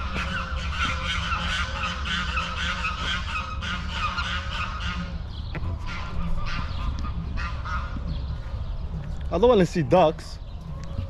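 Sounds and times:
waterfowl calling: 0.0s - 8.5s
low steady rumble: 0.0s - 11.0s.

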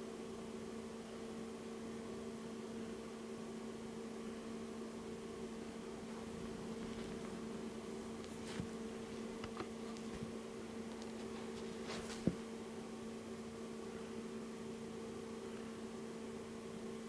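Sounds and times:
faint electrical hum: 0.0s - 17.0s
short rustle: 8.2s - 12.4s.

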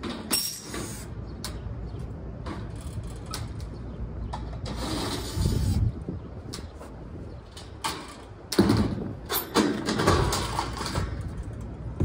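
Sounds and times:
steady low rumble: 10.6s - 12.0s.

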